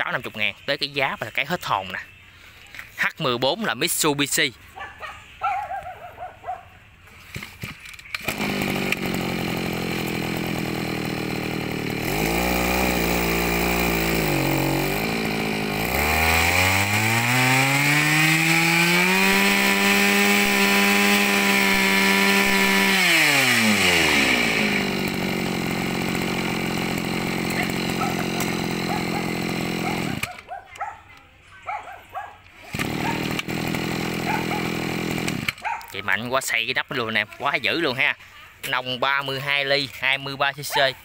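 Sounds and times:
brush cutter engine revving: 7.1s - 30.5s, 32.5s - 41.0s.

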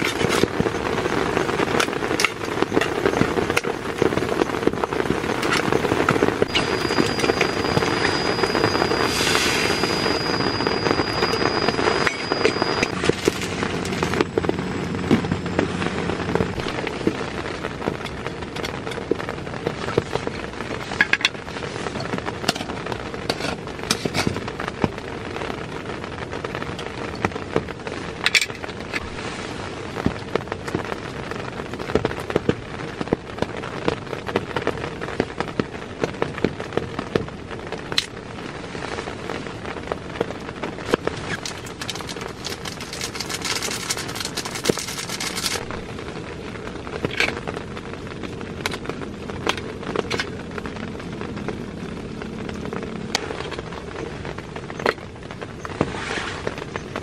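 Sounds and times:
noodles sizzling in a pan: 0.0s - 13.0s, 40.8s - 45.9s.

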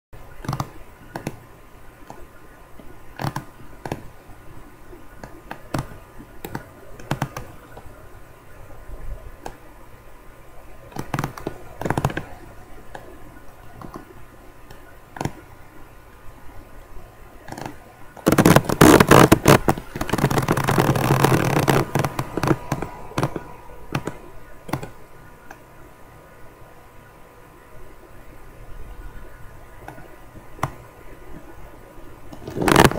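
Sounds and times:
faint electrical hum: 0.2s - 32.9s
irregular clicks and knocks: 10.9s - 15.5s.

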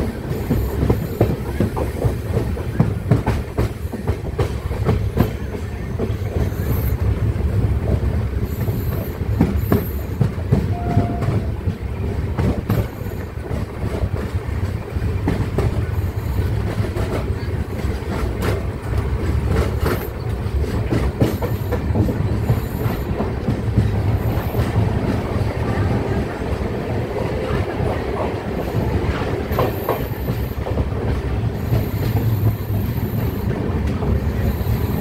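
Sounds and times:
train running gear rumble: 0.0s - 35.0s
train wheels squealing: 21.2s - 23.2s, 31.6s - 33.6s, 34.2s - 35.0s.

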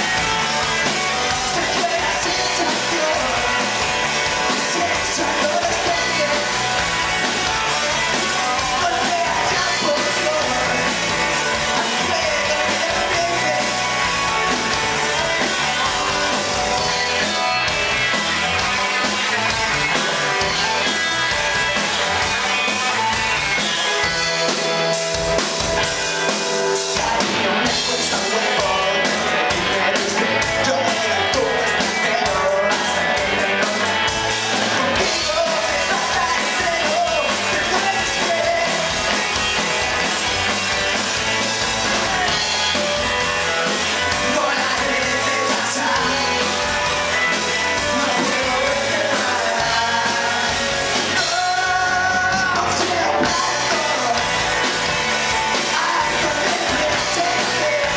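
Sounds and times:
man singing: 0.0s - 14.8s, 26.9s - 40.1s, 41.4s - 57.9s
drum kit: 0.0s - 57.9s
electric bass: 0.0s - 57.9s
electric guitars: 0.0s - 57.9s.

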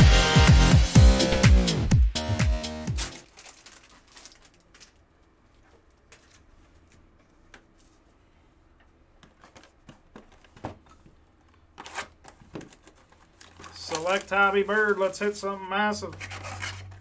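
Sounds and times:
blade slitting plastic wrap: 3.0s - 5.0s
plastic wrap clicks and rustles: 3.1s - 7.1s, 11.5s - 15.4s.

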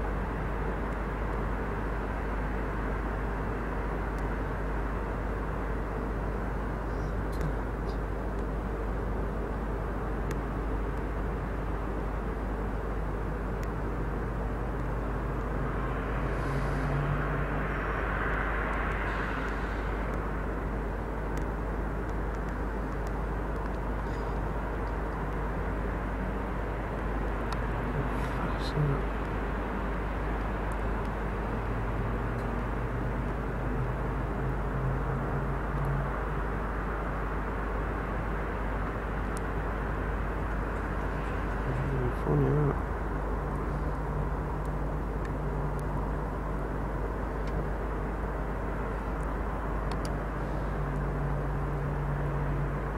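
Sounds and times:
engine rumble: 0.0s - 52.9s
low hum: 0.0s - 52.9s.

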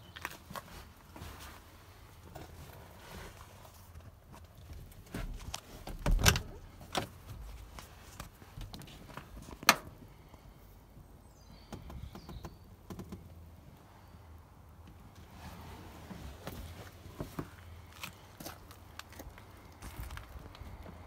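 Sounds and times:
knocks and clicks inside car: 11.7s - 13.3s.

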